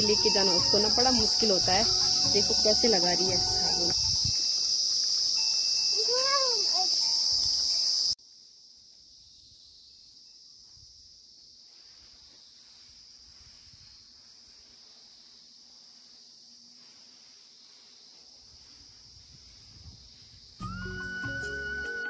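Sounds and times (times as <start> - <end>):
insects shrilling: 0.0 - 8.2, 9.0 - 22.0
light hiss: 0.0 - 20.9
faint insect hum: 0.0 - 21.6
rising and falling call: 20.6 - 22.0.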